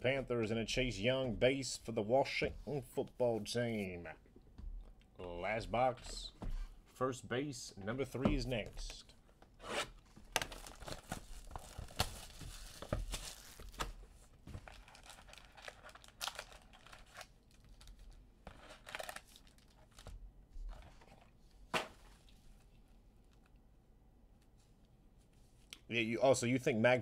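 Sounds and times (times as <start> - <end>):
plastic wrap tearing: 9.8 - 14.0, 14.6 - 20.1
foil packs crinkling: 10.3 - 14.0, 14.6 - 20.1.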